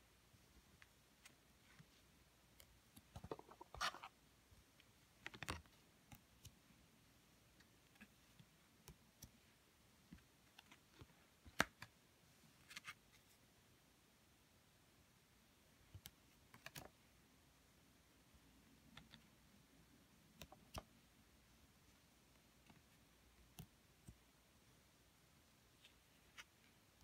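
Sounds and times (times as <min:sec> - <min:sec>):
cards flipping and sliding: 0:01.2 - 0:04.2, 0:05.2 - 0:06.6, 0:12.6 - 0:13.3, 0:15.9 - 0:17.0.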